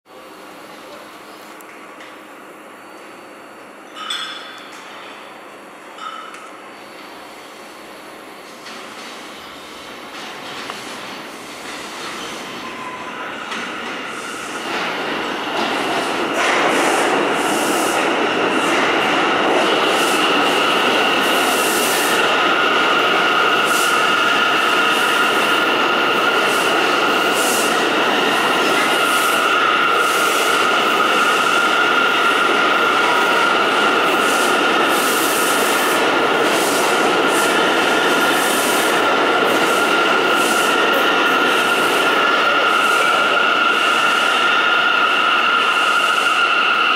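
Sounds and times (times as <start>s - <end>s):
subway train wheels rumbling: 0.1s - 46.9s
high wheel squeal: 42.2s - 46.9s.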